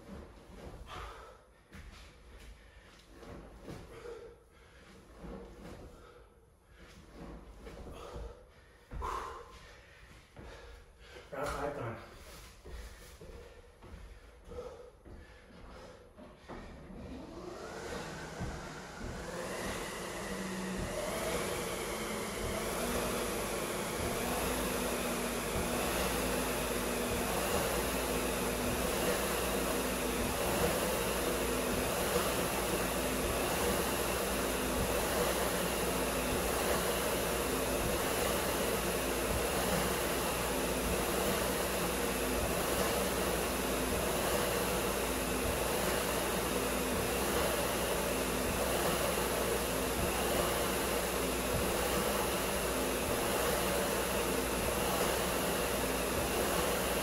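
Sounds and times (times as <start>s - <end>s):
fan flywheel whirring: 12.6s - 57.0s.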